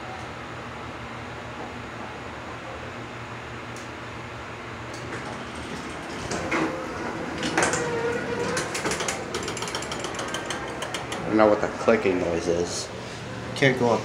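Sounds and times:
elevator hum: 0.0 - 14.0
elevator doors sliding open: 4.8 - 13.6
rapid clicks: 8.4 - 11.4.

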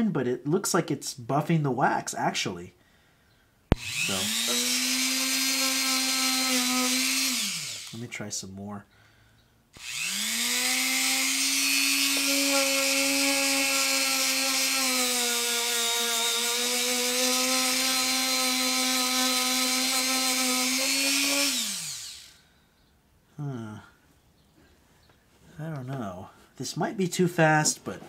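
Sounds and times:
rotary tool motor whine: 3.7 - 8.0, 9.8 - 22.4.

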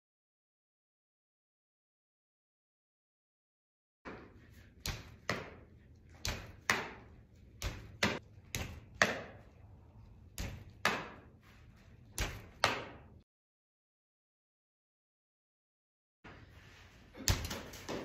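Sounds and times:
ball smacking net: 6.2 - 9.4, 10.4 - 11.4, 12.1 - 13.1, 17.2 - 18.0.

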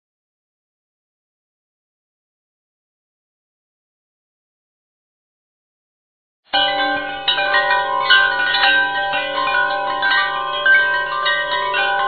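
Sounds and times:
ringing metallic wind chimes: 6.5 - 12.0.

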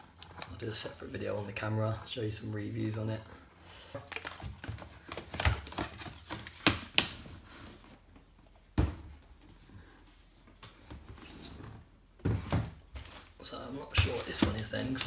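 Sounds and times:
cardboard rustling: 11.0 - 15.0.

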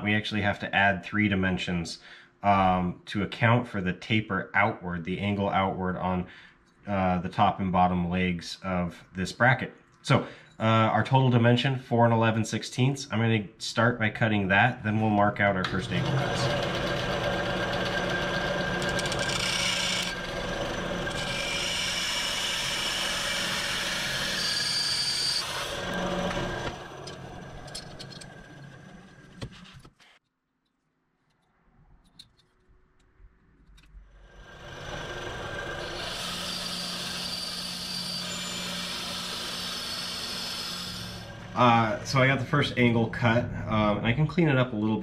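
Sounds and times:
bandsaw cutting metal: 15.7 - 29.4, 34.2 - 42.4.

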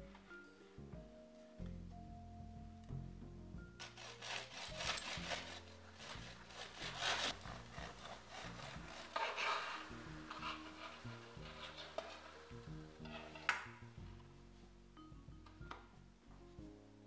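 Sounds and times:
soft background music: 0.0 - 17.0
knife sawing through bread: 3.8 - 12.3.

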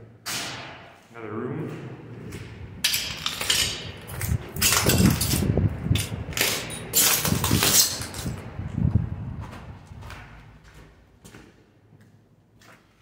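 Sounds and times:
footsteps crunching on floor: 8.3 - 13.0.

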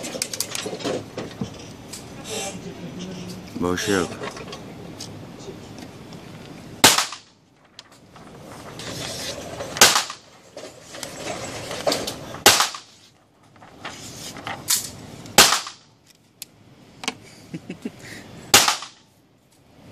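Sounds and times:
gunshots with echo: 6.8 - 7.3, 12.4 - 12.9, 15.4 - 15.8, 18.5 - 19.0.

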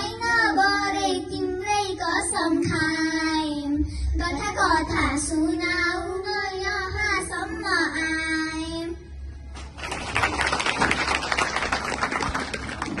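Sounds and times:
audience applause: 9.8 - 13.0.

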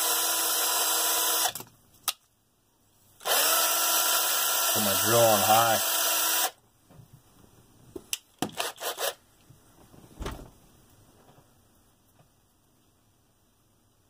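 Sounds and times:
power drill spinning: 0.0 - 1.6, 3.2 - 6.6, 8.5 - 9.2.

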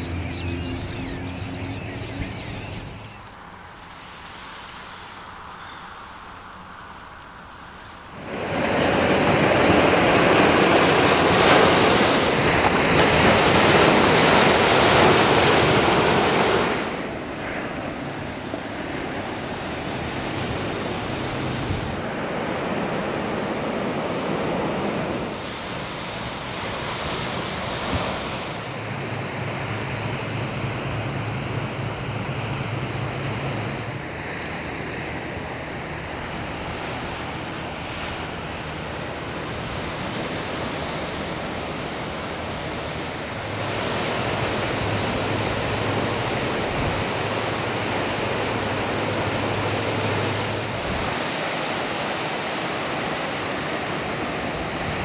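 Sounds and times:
wind noise on microphone: 0.0 - 3.4, 8.2 - 51.7
steady low hum: 0.0 - 3.8
ocean surf washing: 0.0 - 55.0.

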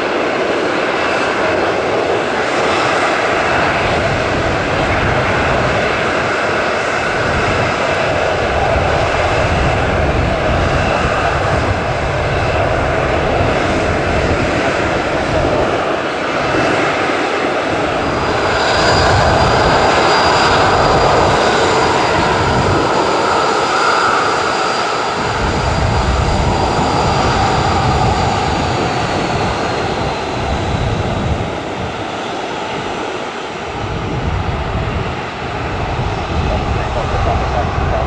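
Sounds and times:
jet engines taxiing: 0.0 - 38.0
low rumble: 33.7 - 38.0.

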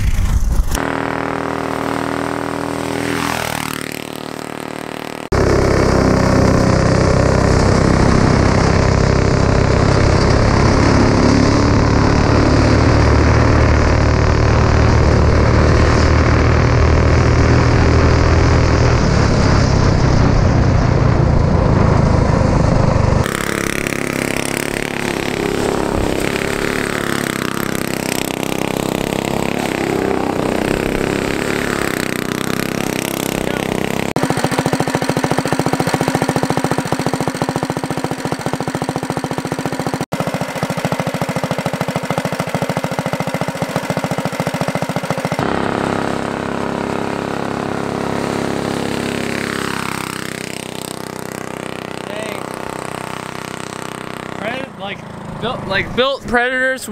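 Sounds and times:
low rumble: 0.0 - 0.9, 5.3 - 23.3
go-kart engine revving: 0.0 - 56.9.

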